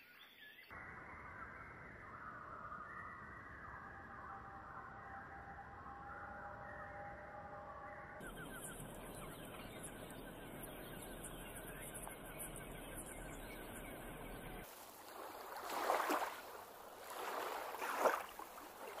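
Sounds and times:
small waves washing: 0:08.7 - 0:19.0
water surging: 0:13.2 - 0:19.0.

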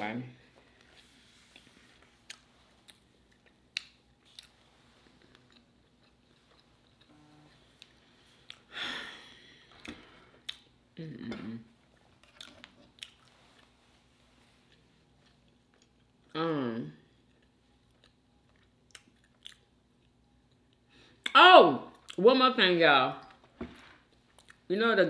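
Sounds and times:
person chewing: 0:00.8 - 0:08.7, 0:09.8 - 0:10.8, 0:11.9 - 0:13.8, 0:14.6 - 0:16.3, 0:17.1 - 0:20.9, 0:24.1 - 0:24.6
person humming: 0:11.0 - 0:11.6.

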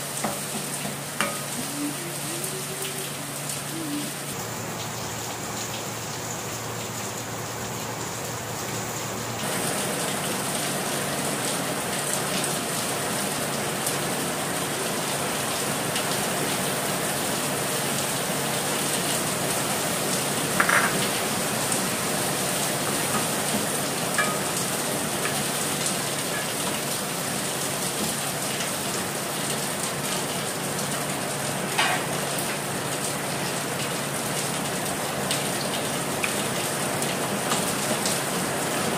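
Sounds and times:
food sizzling in a wok: 0:00.0 - 0:03.8, 0:20.5 - 0:28.2
wooden spoon knocking on pan: 0:20.6 - 0:21.0.

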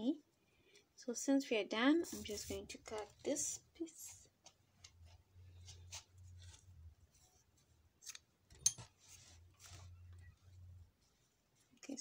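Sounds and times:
cord rustling: 0:02.0 - 0:12.0.

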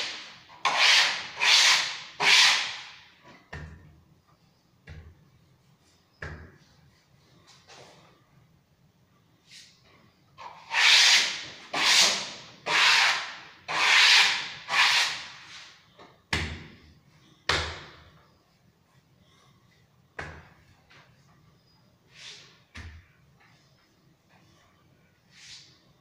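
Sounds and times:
smoothing tool rubbing wallpaper: 0:00.0 - 0:03.0, 0:10.4 - 0:15.7.

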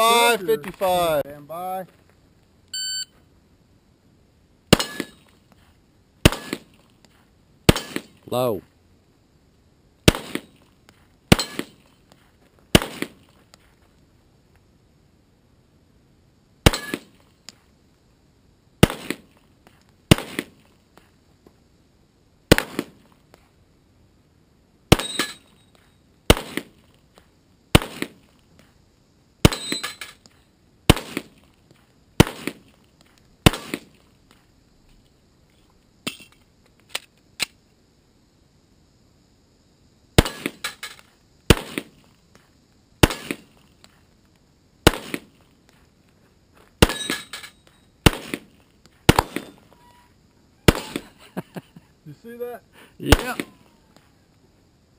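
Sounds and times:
handgun shots: 0:06.3 - 0:06.7, 0:07.7 - 0:08.1, 0:53.0 - 0:53.6.

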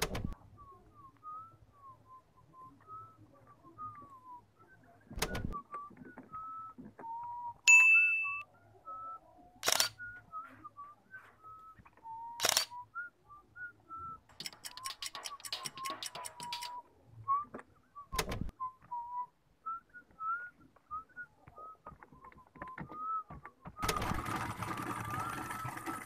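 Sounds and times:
person whistling a tune: 0:00.4 - 0:09.3, 0:10.0 - 0:24.2.

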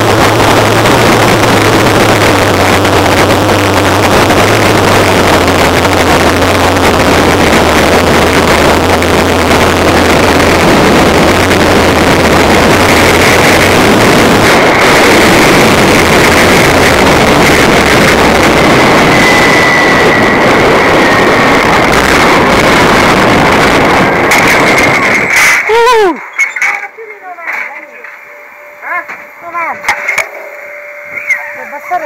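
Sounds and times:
wind rushing on microphone: 0:00.0 - 0:26.2
faint high whine: 0:00.0 - 0:32.0.

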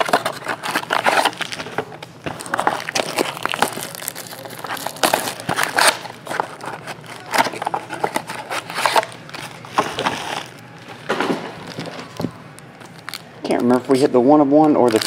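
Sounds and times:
plastic shrink wrap crinkling: 0:00.0 - 0:14.0, 0:14.8 - 0:15.0.

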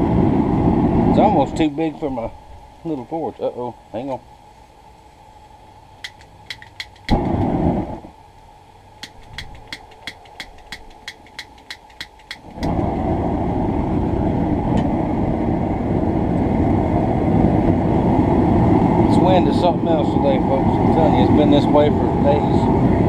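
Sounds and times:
gas flame rushing: 0:06.0 - 0:08.1, 0:09.0 - 0:23.0.

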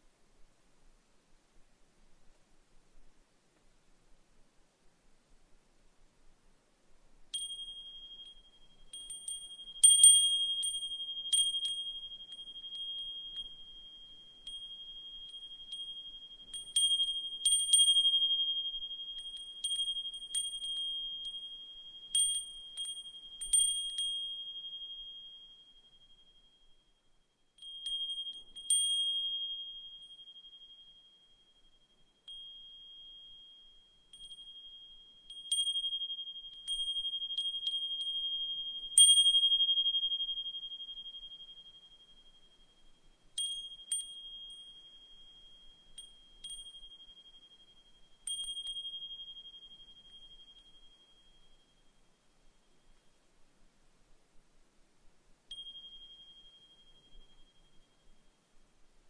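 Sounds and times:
wind chime ringing: 0:07.3 - 0:26.7, 0:27.6 - 0:52.0, 0:55.5 - 0:58.2.

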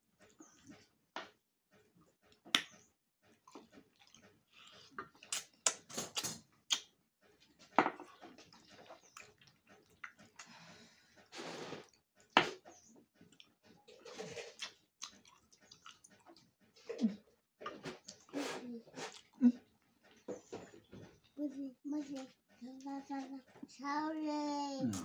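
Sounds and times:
slurping and chewing: 0:03.3 - 0:21.2.

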